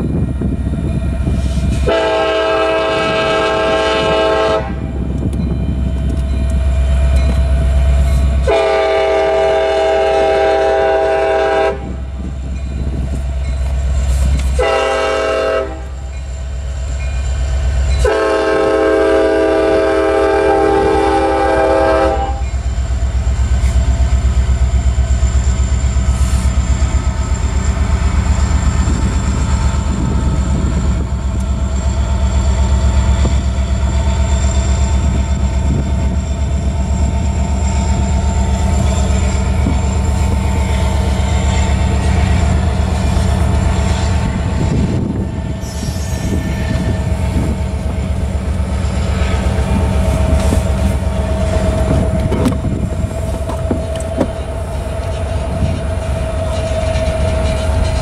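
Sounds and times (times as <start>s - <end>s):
train rolling: 0.0s - 58.0s
locomotive air horn blast: 1.3s - 4.9s, 8.4s - 12.0s, 14.5s - 16.0s, 18.0s - 22.4s
wheels clacking over rail joints: 45.8s - 58.0s.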